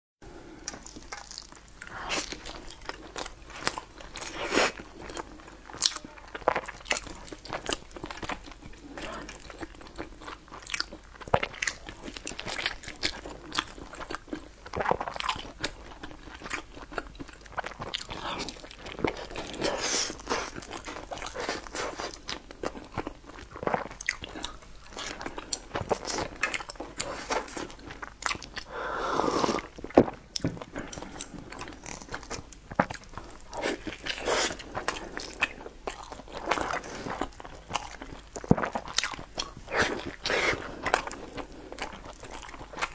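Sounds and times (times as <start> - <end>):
chewing and crunching: 0.6 - 28.8, 29.5 - 42.9.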